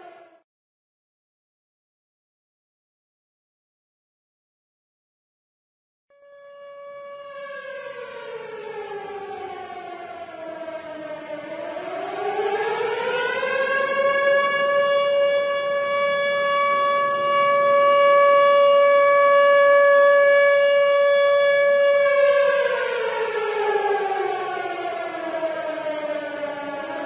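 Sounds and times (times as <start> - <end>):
tornado siren wailing: 0.0 - 0.4, 6.1 - 27.0.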